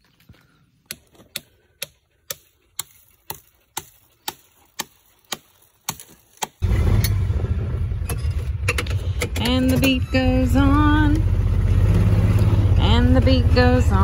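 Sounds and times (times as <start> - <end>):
utility vehicle rumbling: 6.6 - 14.0.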